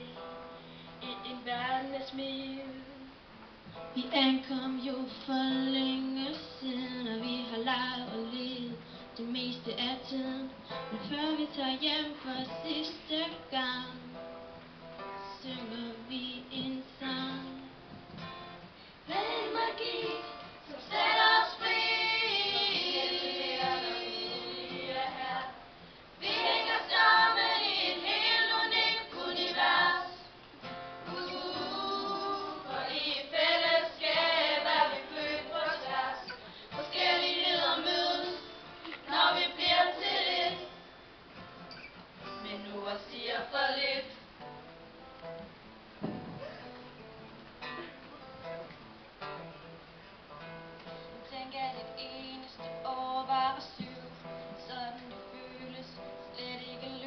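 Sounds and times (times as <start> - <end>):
acoustic guitar: 0.0 - 57.0
girls singing together: 19.1 - 30.4, 31.1 - 40.8, 42.4 - 44.2.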